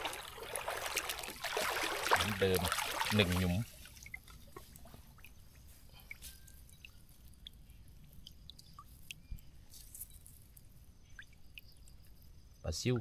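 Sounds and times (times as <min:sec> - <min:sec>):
faint water drips: 0:00.0 - 0:13.0
small wet clicks: 0:02.1 - 0:12.3.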